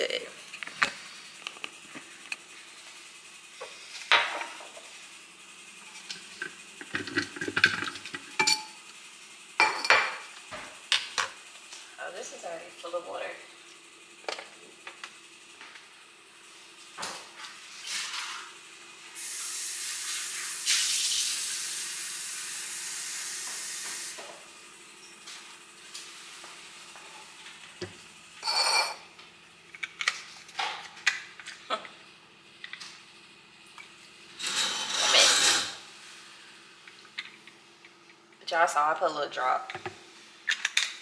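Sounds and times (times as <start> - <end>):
tap water running: 5.8 - 8.7, 19.2 - 24.3.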